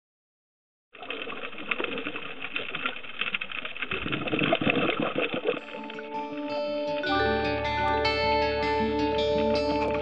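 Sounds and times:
underwater crackle of clicks: 1.0 - 6.1
guitar music: 5.6 - 10.0.

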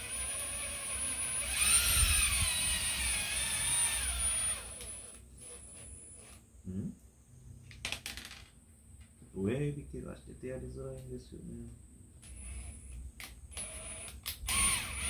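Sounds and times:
thin steady high whine: 0.0 - 7.5.

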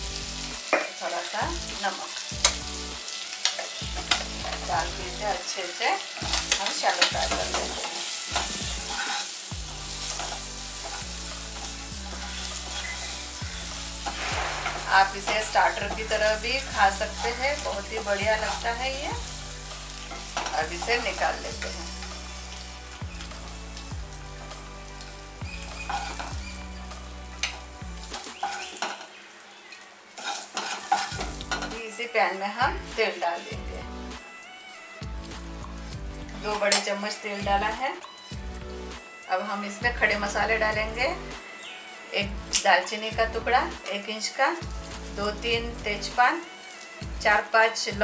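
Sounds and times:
eggs sizzling in butter: 0.0 - 48.0
spatula scraping and knocking pan: 6.1 - 29.1, 30.2 - 31.8.

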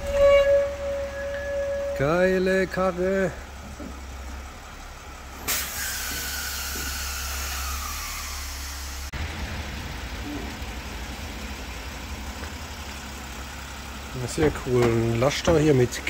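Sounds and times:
truck engine humming: 0.0 - 16.0
compressed air hissing: 5.4 - 9.1.

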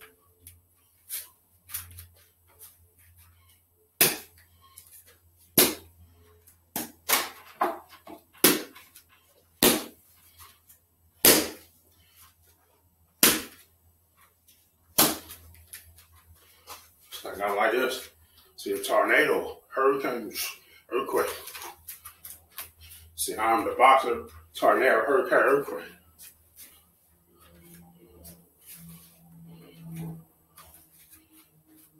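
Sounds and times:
boxing glove smacks: 8.4 - 8.8, 9.6 - 10.0, 11.2 - 11.7, 13.2 - 13.6, 15.0 - 15.4.

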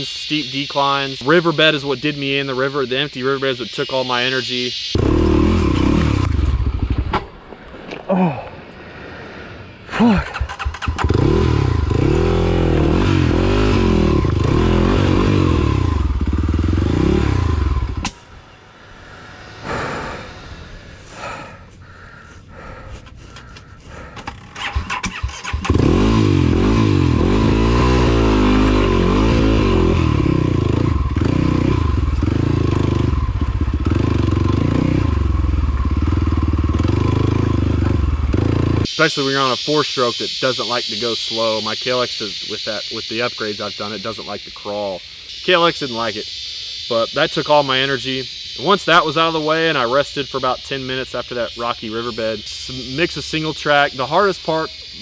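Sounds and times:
motorcycle engine revving: 4.8 - 7.4, 10.0 - 21.7, 23.9 - 39.6.

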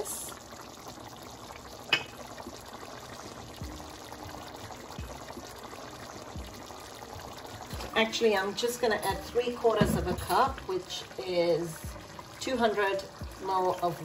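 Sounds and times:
hot water pouring into jug: 0.0 - 14.0
kettle sharp click: 1.9 - 2.2.

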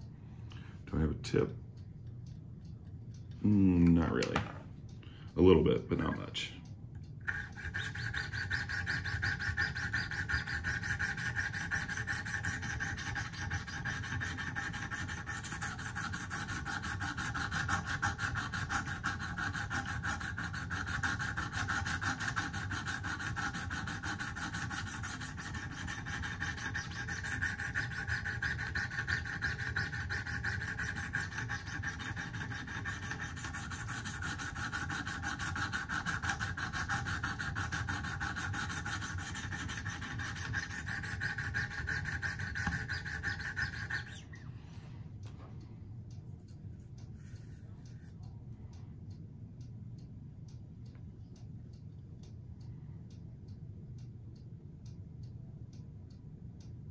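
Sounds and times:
sharpening stones rubbing on blade: 7.3 - 44.4.

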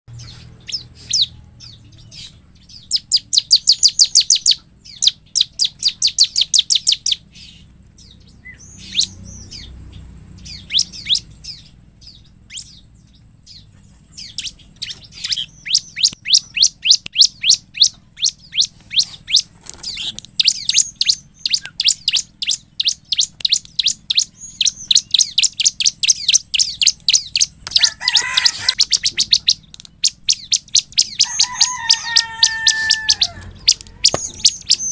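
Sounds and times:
bird chirping rapidly: 0.1 - 34.9
harsh bird call: 13.5 - 34.9.

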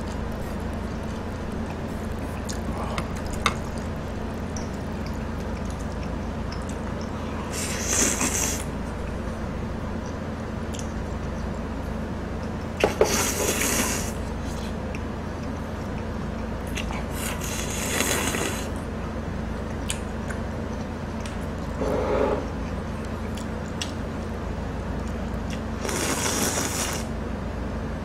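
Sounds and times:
chewing: 0.0 - 9.3, 12.4 - 18.8, 19.6 - 27.0
steady low hum: 0.0 - 28.0
loud slurps: 7.4 - 8.8, 12.8 - 14.2, 17.1 - 18.8, 25.8 - 27.1.

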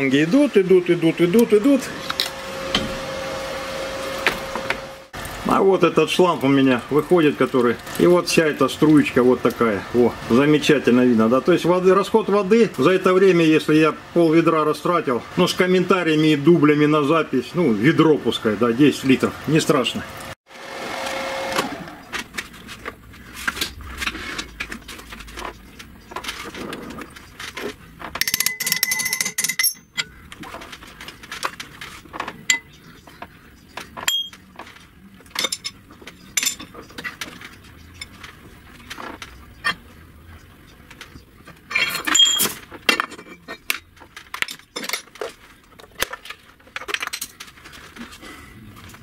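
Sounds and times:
metal parts clinking and clanking: 27.4 - 30.8, 34.0 - 39.8, 41.6 - 47.6.

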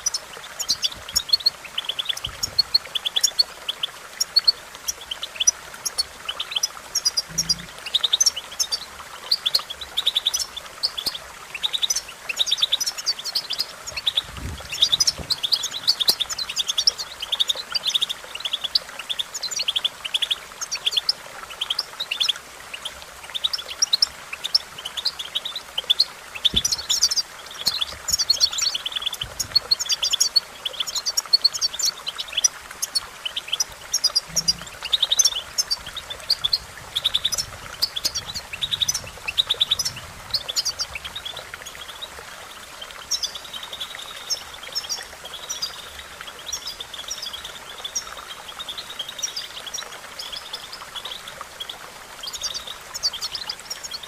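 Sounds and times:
finch twittering song: 0.0 - 42.1.

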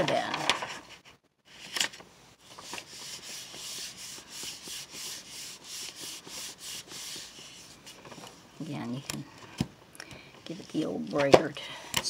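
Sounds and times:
paper rustle: 0.0 - 8.4
palm swishing over paper: 2.4 - 8.5.

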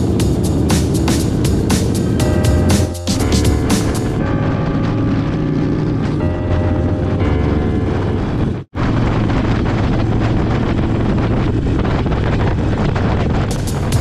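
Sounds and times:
motorcycle engine running: 0.0 - 14.0
wind noise on microphone: 0.0 - 14.0.

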